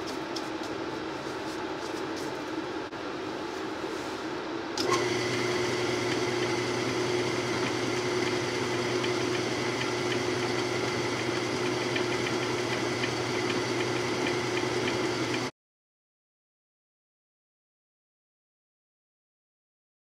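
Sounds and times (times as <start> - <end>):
metal lathe running: 4.8 - 15.5.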